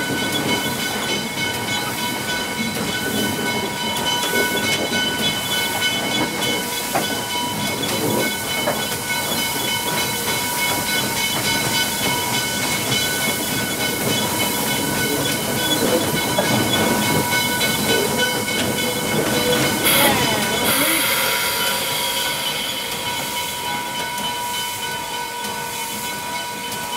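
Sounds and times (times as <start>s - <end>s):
steam hissing: 2.0s - 26.6s
locomotive engine running: 16.4s - 25.2s.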